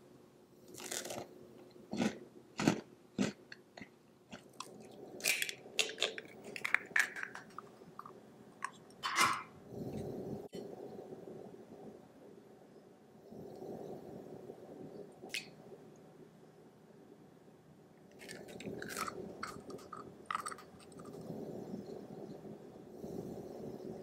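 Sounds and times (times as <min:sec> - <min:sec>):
eggshell cracking over glass bowl: 0:05.2 - 0:08.8, 0:18.2 - 0:21.2.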